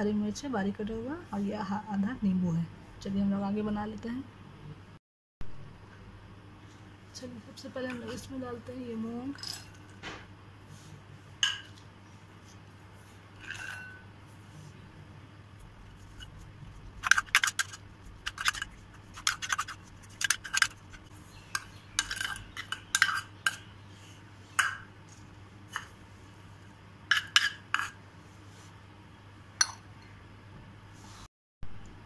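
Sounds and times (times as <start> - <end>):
bowls clinking against glass bowl: 11.4 - 11.8, 13.4 - 14.0.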